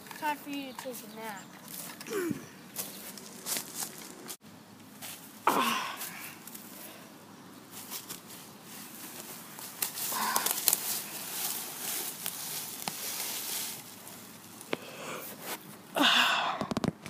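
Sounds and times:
leaves and twigs crunching: 0.2 - 15.8
scuffing footsteps: 2.7 - 4.4
body dragged across leaves: 7.7 - 15.7.

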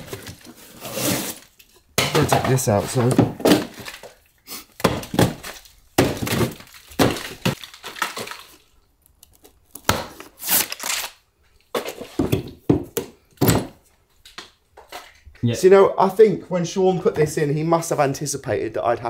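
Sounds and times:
board cracking and crumbling: 0.0 - 8.7.

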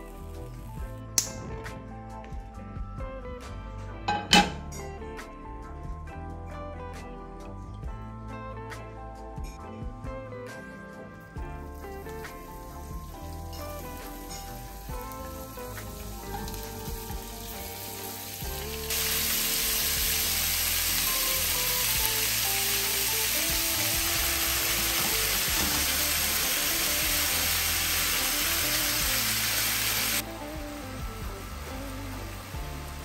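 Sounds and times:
food sizzling in a pan: 0.0 - 0.8, 11.7 - 33.0
background music: 0.0 - 33.0.

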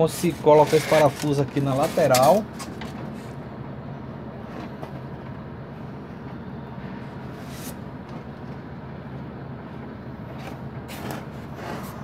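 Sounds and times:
faint handling sounds: 0.0 - 3.4
screw scraping through styrofoam: 0.1 - 2.4.

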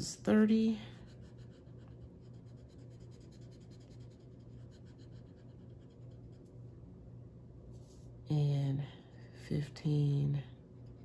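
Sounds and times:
low steady hum: 0.0 - 11.0
marker scribbling on paper: 0.9 - 6.5.

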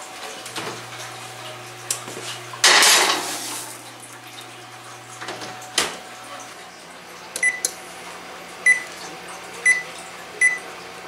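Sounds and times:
dish clattering and scraping on rack: 2.0 - 3.7.

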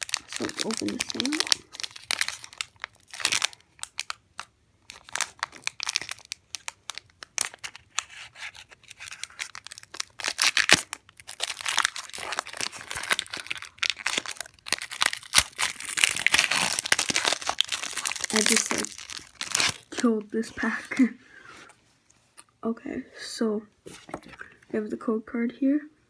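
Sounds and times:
foil card pack crinkling and tearing: 0.0 - 20.1.

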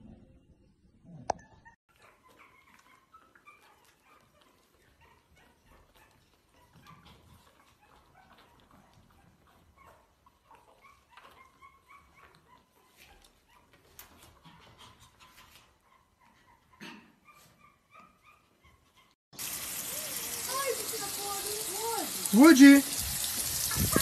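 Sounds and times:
puppies squeaking and whimpering: 1.4 - 19.2.

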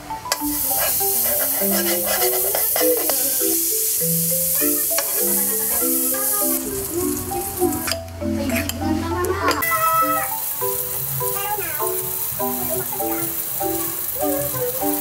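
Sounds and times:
marimba-like background melody: 0.0 - 15.0
margarine sizzling in a wok: 0.3 - 15.0
metal spoon scraping a pan: 0.4 - 3.7
spoon clicking on a pan: 4.9 - 5.4.

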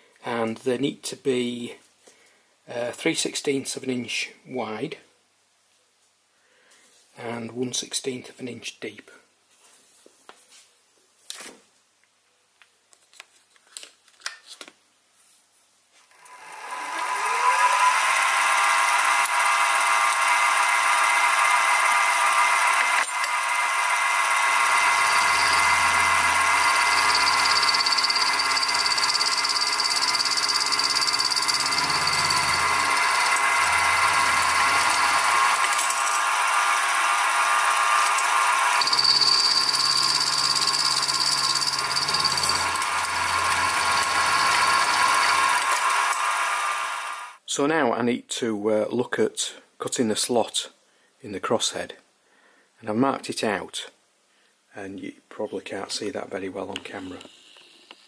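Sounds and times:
end mill cutting brass: 15.9 - 47.4
mill spindle whining: 15.9 - 47.4.

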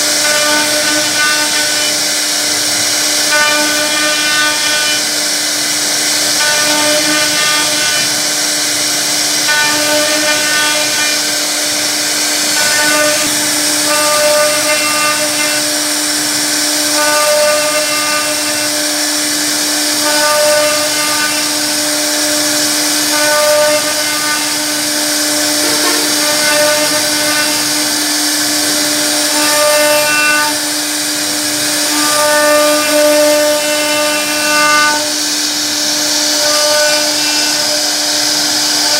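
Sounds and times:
router spindle whine: 0.0 - 38.9.

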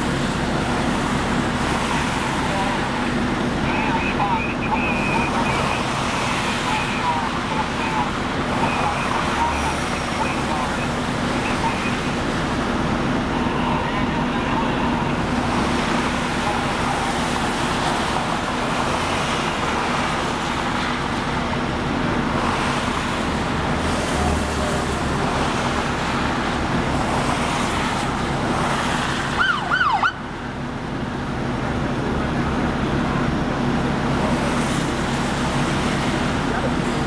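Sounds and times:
highway traffic: 0.0 - 37.0
police siren burst: 29.3 - 30.3.

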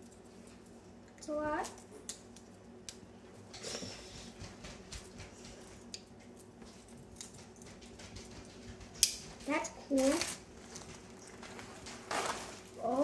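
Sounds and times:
soft rustle: 10.0 - 13.0.

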